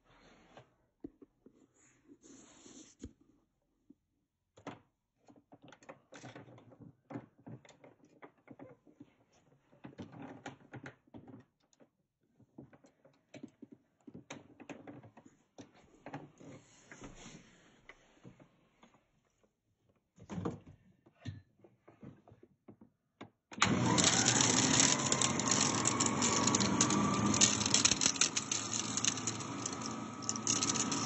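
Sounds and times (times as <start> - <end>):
vacuum cleaner clicks and knocks: 23.6 - 31.0.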